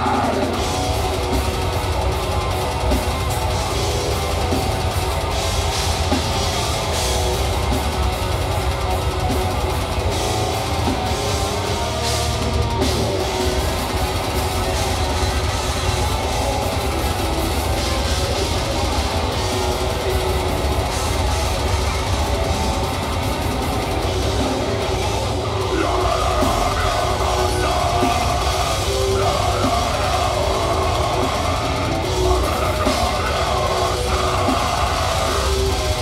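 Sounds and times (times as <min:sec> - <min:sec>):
harsh screamed vocals: 0:00.0 - 0:03.3, 0:11.1 - 0:36.0
metal band playing live: 0:00.0 - 0:36.0.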